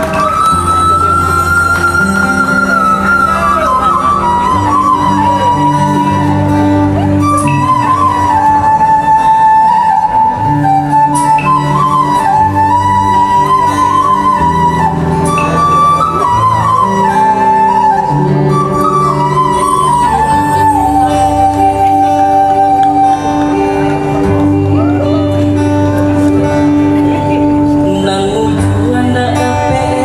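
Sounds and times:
flute playing ornamented melody: 0:00.0 - 0:26.8
long held bass notes: 0:00.0 - 0:30.0
strummed acoustic guitar: 0:00.0 - 0:30.0.

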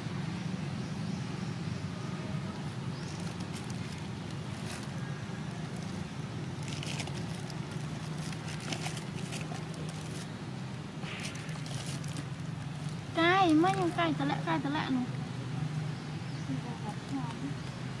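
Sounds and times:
plastic bag crinkling: 0:06.6 - 0:10.3, 0:11.1 - 0:14.0.

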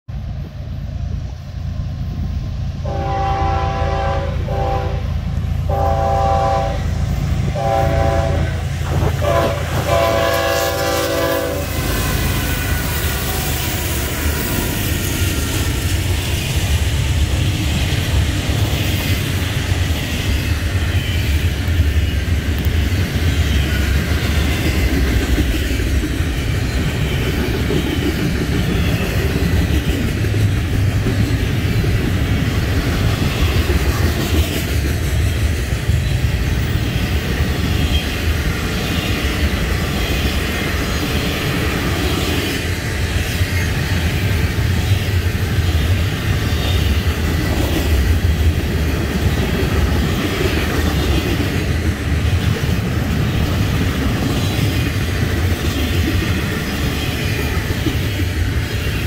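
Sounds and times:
train rumbling and clattering past: 0:00.1 - 0:59.0
train air horn blasts: 0:02.8 - 0:13.0.

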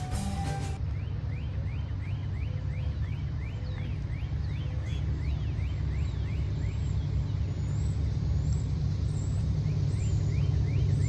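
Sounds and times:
diesel locomotive rumble: 0:00.0 - 0:01.7.

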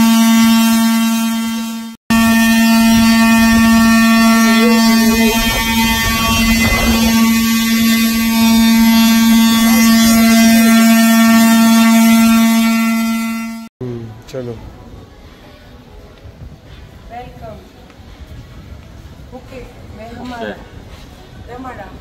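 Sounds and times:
metal gong humming: 0:02.1 - 0:13.0.

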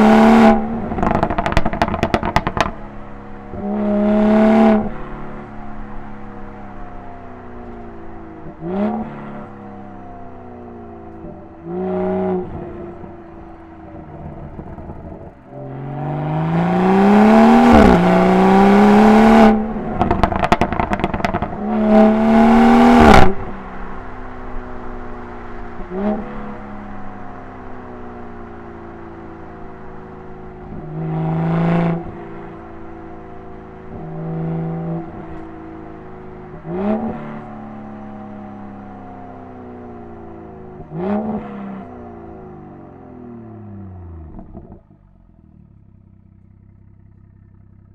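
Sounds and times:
car engine accelerating: 0:00.0 - 0:47.9
exhaust crackles: 0:00.0 - 0:47.9.

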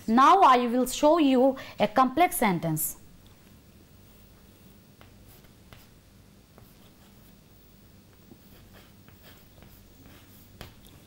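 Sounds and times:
low steady hum: 0:00.0 - 0:11.0
chalk scratching on chalkboard: 0:05.0 - 0:06.0, 0:06.6 - 0:07.4, 0:08.2 - 0:11.0
chalk tapping on chalkboard: 0:05.0 - 0:06.0, 0:08.2 - 0:11.0.

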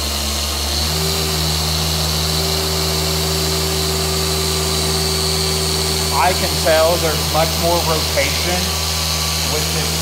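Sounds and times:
car polisher running: 0:00.0 - 0:10.0.

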